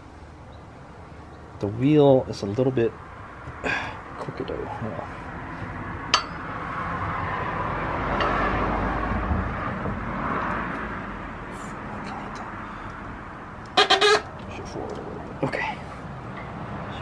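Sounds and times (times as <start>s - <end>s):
vehicle passing by: 3.2s - 13.6s, 14.3s - 17.0s.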